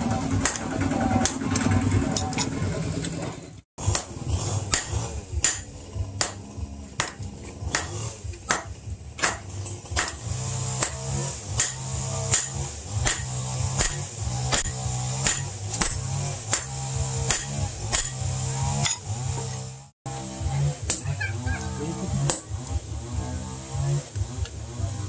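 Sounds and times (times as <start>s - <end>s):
hammer striking steel on anvil: 0.1s - 1.4s, 3.8s - 19.6s, 20.8s - 21.2s, 22.2s - 22.6s.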